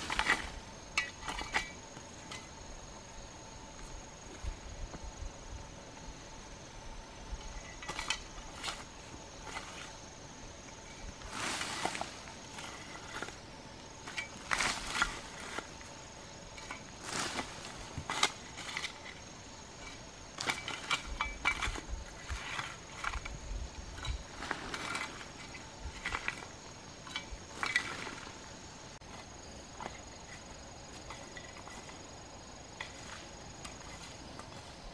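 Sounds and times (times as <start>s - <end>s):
shovel digging into earth: 0.0s - 2.5s, 16.6s - 19.1s.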